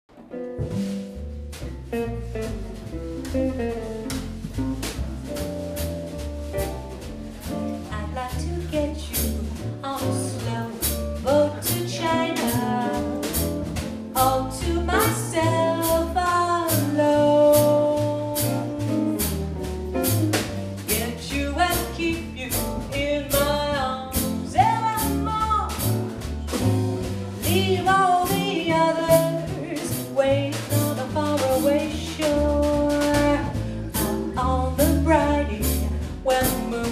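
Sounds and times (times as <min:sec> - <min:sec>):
jazz band playing swing: 0:00.1 - 0:36.9
woman singing: 0:07.8 - 0:13.4, 0:14.2 - 0:19.2, 0:20.9 - 0:26.1, 0:27.3 - 0:36.9.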